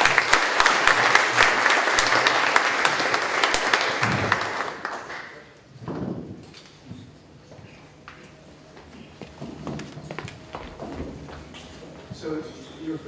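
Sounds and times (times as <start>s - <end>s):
audience applauding: 0.0s - 5.6s.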